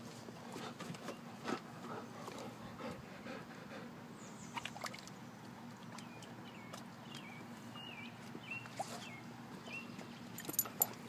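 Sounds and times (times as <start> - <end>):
water sloshing and lapping: 0.0 - 11.0
small splashes: 4.5 - 7.3.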